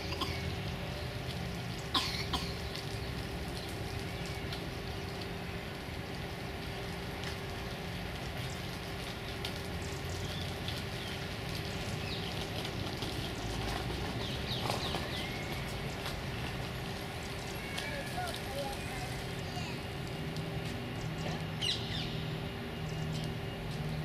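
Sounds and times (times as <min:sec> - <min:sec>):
distant traffic rumble: 0:00.0 - 0:24.0
faint steady hum: 0:00.0 - 0:24.0
small birds chirping: 0:08.3 - 0:19.9, 0:20.9 - 0:24.0.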